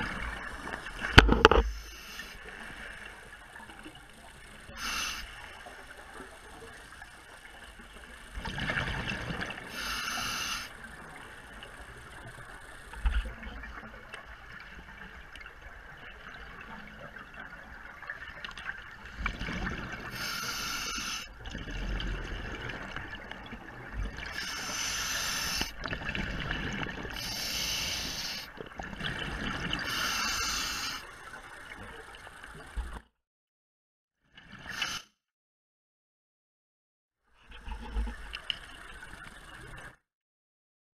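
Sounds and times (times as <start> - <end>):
diver breathing through regulator: 1.3 - 2.9, 4.7 - 5.4, 9.7 - 10.8, 20.1 - 21.4, 24.3 - 25.8, 27.1 - 28.5, 29.7 - 31.1, 34.7 - 35.1.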